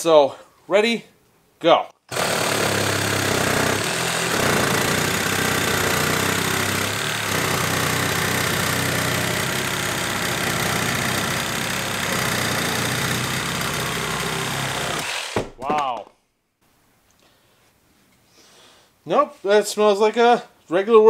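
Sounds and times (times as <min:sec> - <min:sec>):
reciprocating saw cutting wood: 0:02.1 - 0:15.5.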